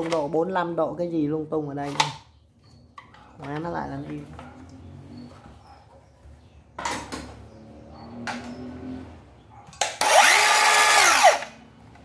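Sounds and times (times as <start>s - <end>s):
saw motor whirring: 10.0s - 11.6s.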